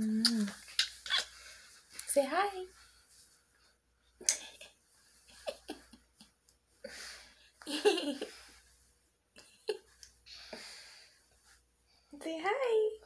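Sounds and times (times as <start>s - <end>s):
short vocal sounds: 0.0s - 1.3s.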